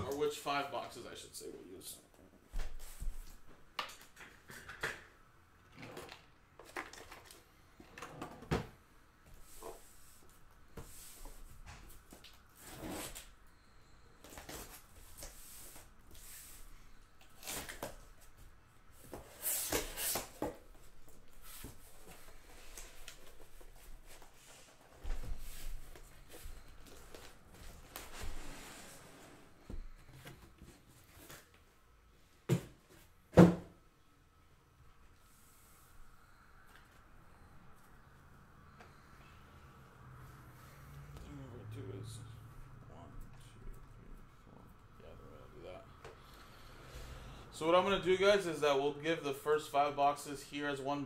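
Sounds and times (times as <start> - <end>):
cardboard boxes sliding and scraping: 24.1 - 29.6.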